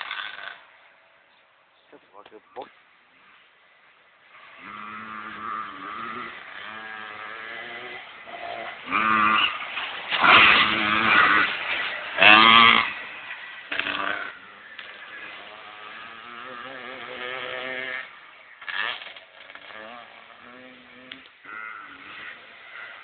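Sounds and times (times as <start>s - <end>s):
small motorbike engine revving: 0.0s - 0.7s, 4.3s - 23.0s.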